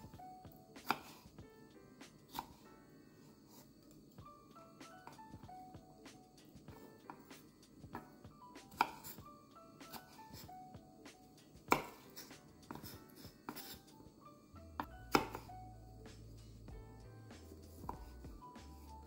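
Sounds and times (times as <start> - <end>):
light background music: 0.0 - 19.0
knife slicing strawberries: 0.7 - 1.4, 2.0 - 2.6, 8.0 - 10.5, 11.6 - 13.9, 14.8 - 15.5, 17.3 - 18.9
knife knocking on cutting board: 11.7 - 12.0.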